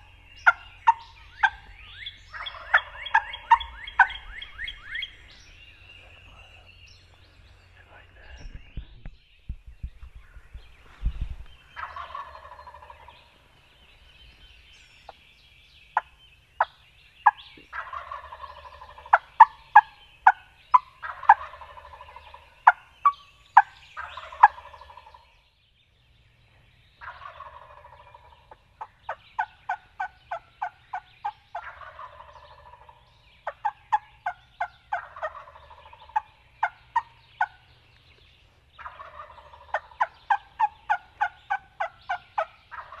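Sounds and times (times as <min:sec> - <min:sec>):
turkey gobbling: 0:00.0 - 0:05.4, 0:11.8 - 0:13.3, 0:16.0 - 0:25.2, 0:27.0 - 0:37.7, 0:38.8 - 0:43.0.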